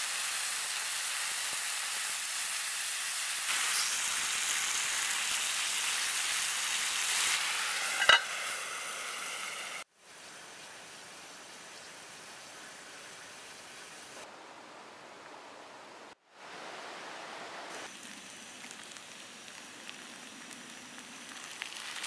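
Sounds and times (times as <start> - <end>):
potatoes sizzling in oil: 0.0 - 9.9, 17.7 - 22.0
lid clanking onto pan: 7.8 - 8.6.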